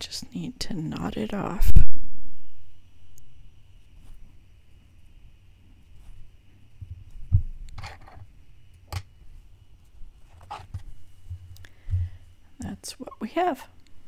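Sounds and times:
floss and fabric rasping: 9.2s - 12.2s.

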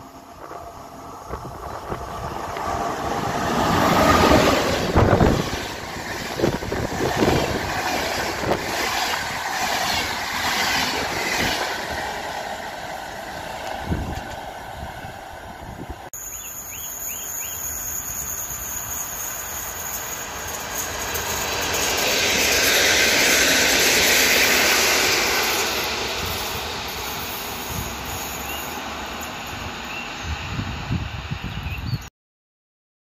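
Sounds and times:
train wheels on rails: 0.0s - 31.7s
faint bird chirps: 16.2s - 17.8s.

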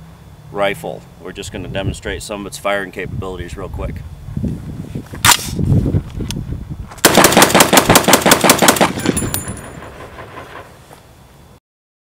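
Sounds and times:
rifle firing rapid shots: 7.0s - 10.7s.

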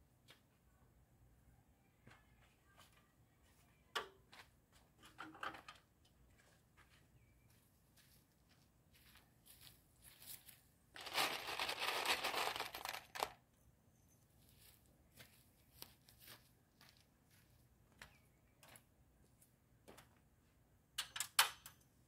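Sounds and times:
plastic sheeting crinkling: 11.0s - 13.3s.

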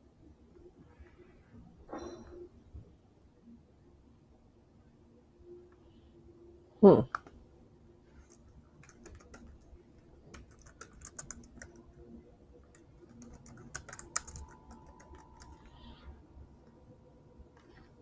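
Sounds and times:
faint keyboard typing: 8.1s - 16.8s.

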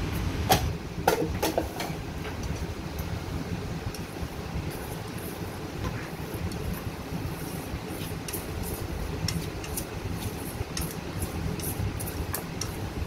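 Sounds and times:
steady low rumble: 1.6s - 13.0s
chopsticks mixing wet marinade: 3.9s - 13.0s
chopsticks clicking on metal bowl: 9.2s - 9.9s, 10.7s - 12.8s.

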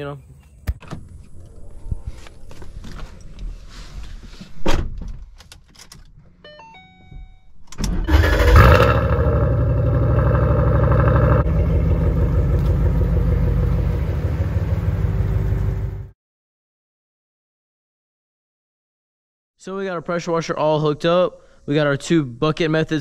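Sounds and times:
car engine cranking and starting: 7.7s - 16.1s
car engine idling: 8.1s - 16.1s.

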